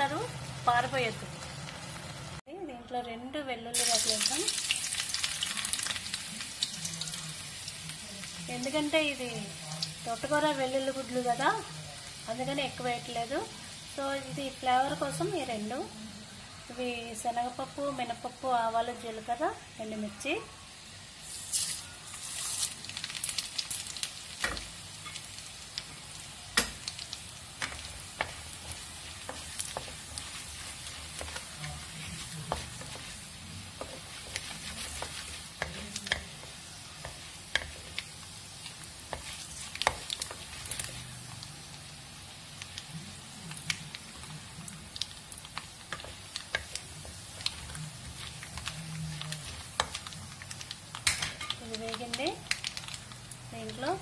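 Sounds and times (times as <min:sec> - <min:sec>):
hot oil sizzling: 0:00.0 - 0:02.4, 0:03.7 - 0:54.0
spatula stirring: 0:21.5 - 0:53.8.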